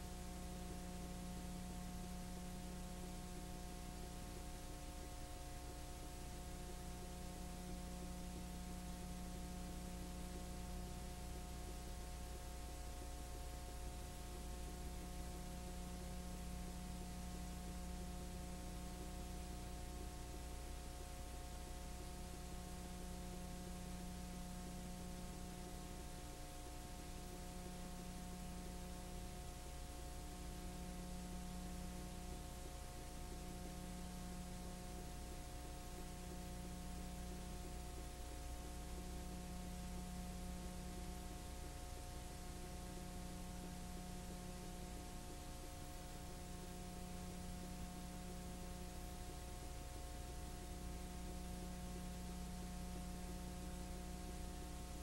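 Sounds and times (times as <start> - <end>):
electrical hum: 0.0 - 55.0.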